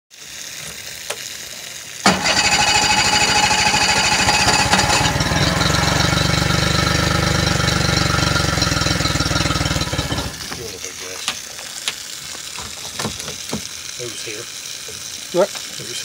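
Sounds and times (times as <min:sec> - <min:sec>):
outboard motor starting and idling: 0:02.0 - 0:10.9.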